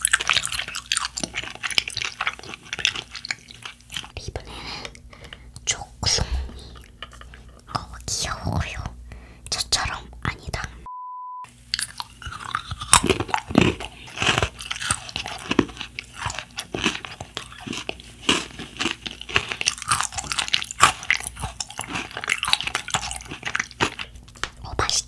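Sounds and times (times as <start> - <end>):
crunchy chewing of biscuit: 0.0 - 5.6, 11.7 - 25.0.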